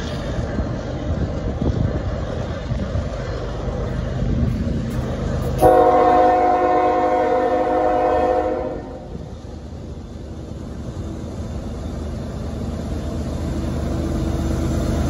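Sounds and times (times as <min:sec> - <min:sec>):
locomotive rumbling: 0:00.0 - 0:15.0
locomotive air horn blast: 0:05.6 - 0:09.1.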